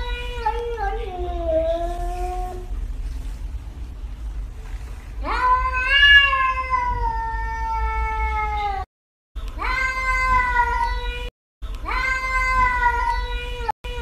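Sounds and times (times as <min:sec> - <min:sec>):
cat yowling: 0:05.2 - 0:08.9, 0:09.6 - 0:13.5.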